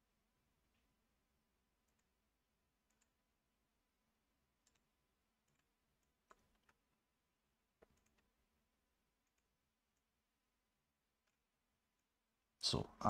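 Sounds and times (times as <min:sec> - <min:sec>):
faint computer mouse clicks: 0:04.6 - 0:06.8, 0:07.8 - 0:08.3.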